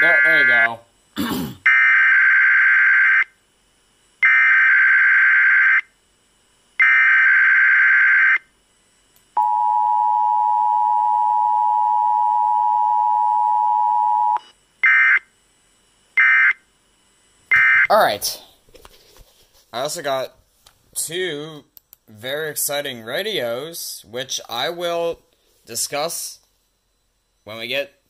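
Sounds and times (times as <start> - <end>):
screechy digital data bursts: 0.0 - 0.8.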